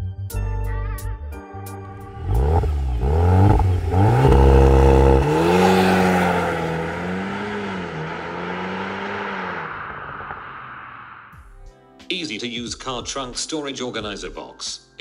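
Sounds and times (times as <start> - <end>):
car engine revving and accelerating: 2.1 - 11.3.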